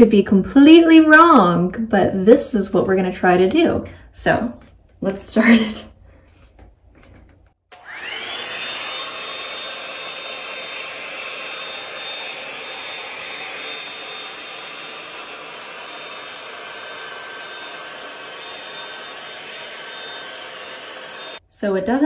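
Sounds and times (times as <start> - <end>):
hair dryer brush whining: 7.7 - 21.4.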